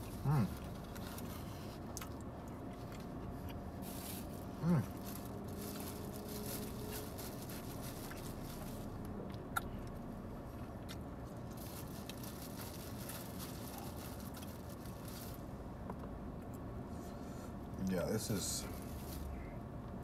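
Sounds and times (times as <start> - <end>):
quiet chewing: 0.0 - 15.0
steady low hum: 0.0 - 20.0
plastic bag crinkling: 3.8 - 9.0, 11.5 - 15.4.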